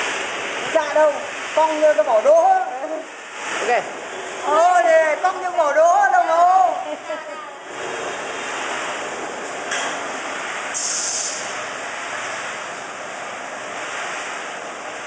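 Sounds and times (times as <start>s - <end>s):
brief loud hiss: 10.7s - 11.6s.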